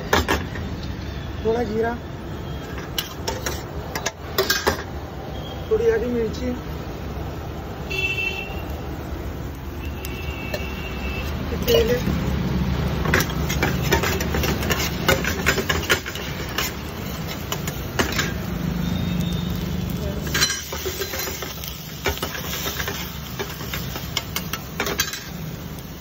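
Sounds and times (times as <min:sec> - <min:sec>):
onions frying in oil: 0:00.0 - 0:26.0
metal spatula scraping frying pan: 0:02.7 - 0:04.8, 0:12.9 - 0:18.5, 0:20.2 - 0:25.4.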